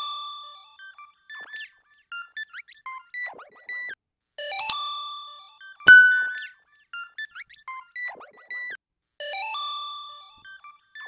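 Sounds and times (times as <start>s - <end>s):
electronic synth jingle: 5.9s - 6.5s.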